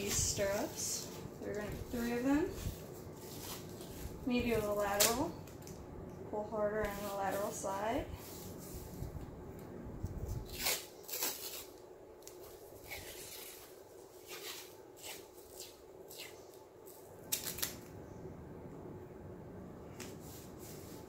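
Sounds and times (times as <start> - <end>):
tape ripping off roll: 10.4 - 17.9.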